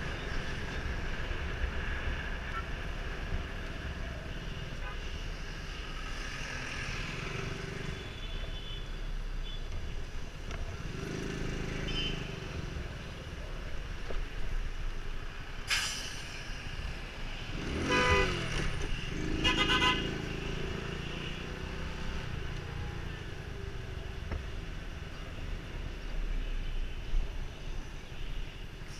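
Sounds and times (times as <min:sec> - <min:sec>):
scooter engine and road noise: 0:00.0 - 0:28.9
short hiss: 0:15.7 - 0:16.5
vehicle horn: 0:17.7 - 0:18.6, 0:19.4 - 0:20.2.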